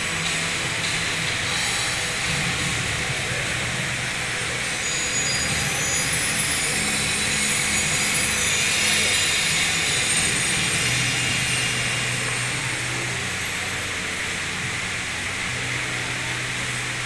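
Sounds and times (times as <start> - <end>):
low sustained tones: 0.0 - 17.0.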